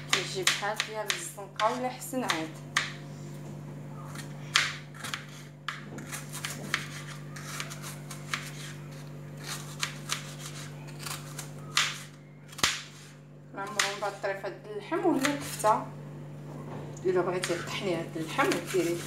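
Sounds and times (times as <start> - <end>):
knife slicing onion on board: 0.0 - 3.0, 4.1 - 14.2, 15.2 - 15.6, 18.2 - 19.0.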